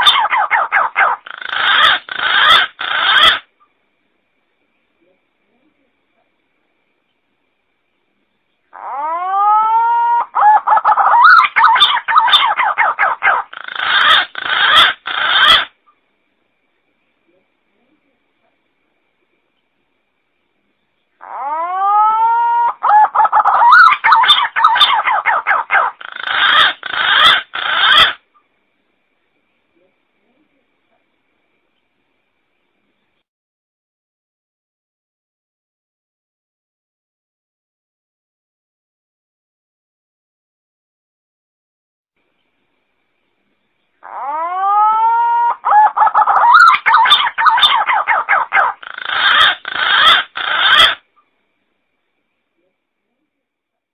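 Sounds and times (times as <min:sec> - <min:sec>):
harsh rasping bird notes: 0:00.0 - 0:03.4, 0:45.9 - 0:51.0
pigeon song whistling and warbling: 0:44.2 - 0:51.0.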